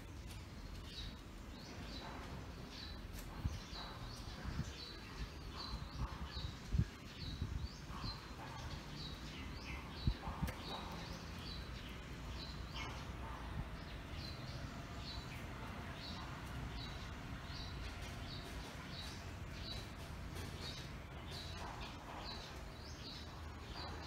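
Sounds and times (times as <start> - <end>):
bird chirping: 0.0 - 24.0.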